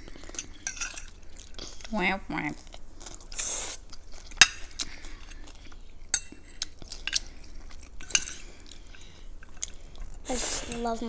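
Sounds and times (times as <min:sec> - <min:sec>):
forks scraping plates: 0:00.0 - 0:01.2, 0:06.1 - 0:09.1, 0:10.3 - 0:10.9.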